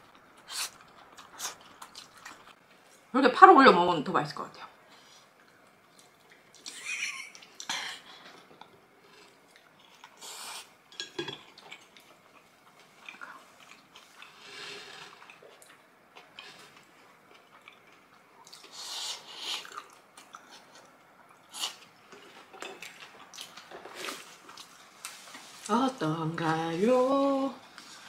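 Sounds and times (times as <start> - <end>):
chewing: 0.4 - 2.6, 7.5 - 25.4.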